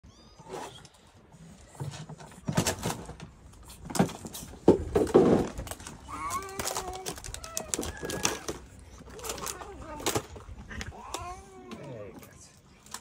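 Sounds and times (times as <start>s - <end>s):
cats meowing: 0.0s - 1.1s, 6.1s - 10.0s
plastic cooler box clattering: 1.7s - 10.9s.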